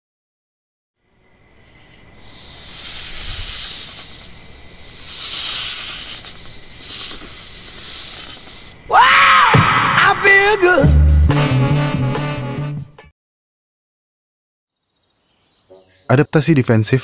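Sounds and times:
crickets trilling: 1.0s - 11.2s
hissing noise: 2.2s - 10.7s.

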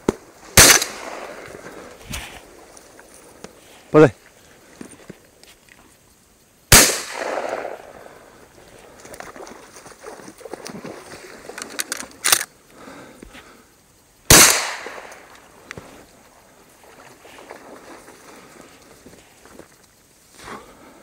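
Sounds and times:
sharp crack: 0.0s - 2.4s, 6.7s - 8.1s, 14.3s - 15.5s
shotgun shots echoing: 0.4s - 1.4s, 6.7s - 8.1s, 14.3s - 15.3s.

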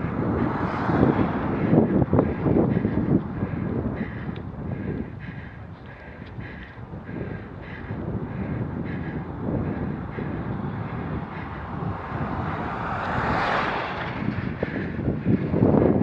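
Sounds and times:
truck passing by: 0.0s - 4.0s, 8.0s - 16.0s
wind rumble on microphone: 0.0s - 16.0s.

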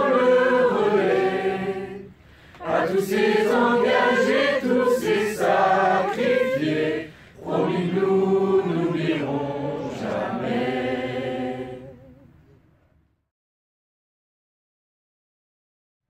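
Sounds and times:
group of voices singing: 0.0s - 12.3s.

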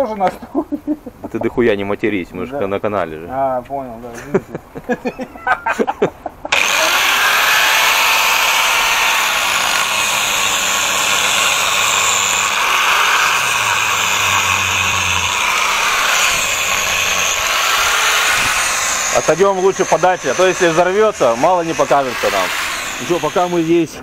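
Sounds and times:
angle grinder cutting rubber: 6.5s - 24.0s.

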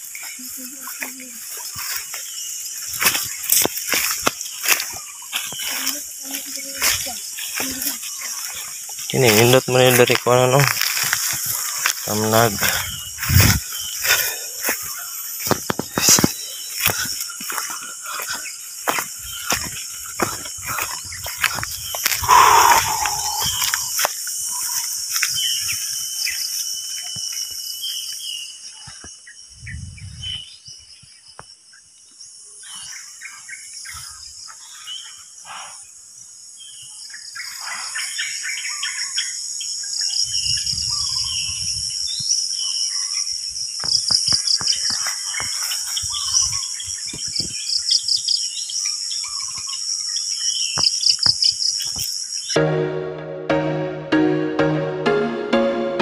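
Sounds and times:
pulsing insect chorus: 0.0s - 52.6s
bird chirps: 11.6s - 31.8s.

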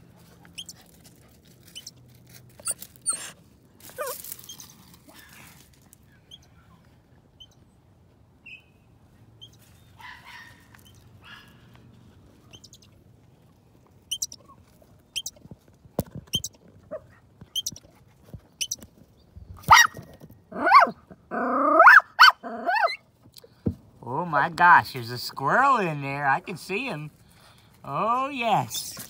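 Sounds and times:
dog whining and yipping: 0.5s - 0.9s, 1.6s - 2.0s, 2.6s - 5.3s, 16.3s - 17.8s, 19.7s - 23.0s.

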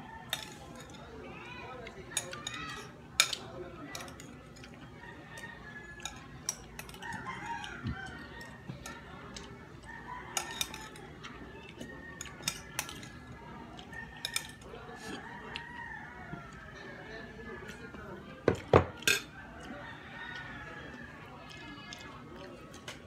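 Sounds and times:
metal spoon clinking on glass bowl: 10.4s - 11.0s.

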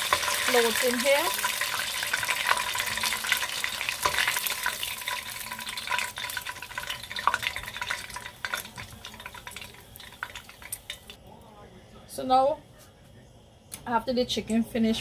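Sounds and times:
frying oil sizzling and crackling: 0.0s - 11.2s.

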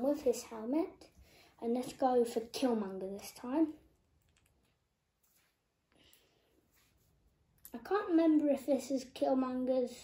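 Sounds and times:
faint plastic bricks clicking: 4.0s - 4.8s.

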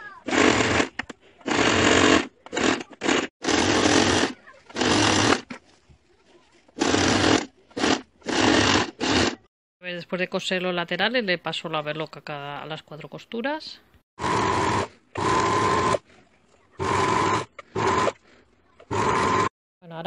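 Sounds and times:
sewing machine stitching: 0.0s - 5.6s, 6.7s - 9.5s, 14.2s - 19.5s.

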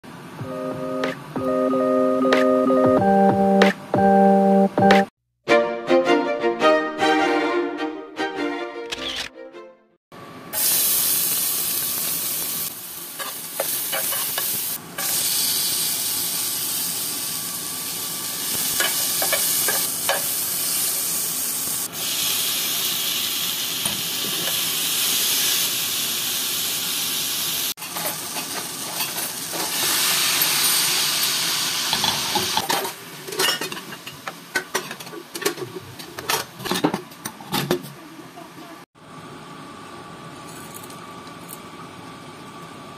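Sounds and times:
food sizzling in hot oil: 10.6s - 33.2s.

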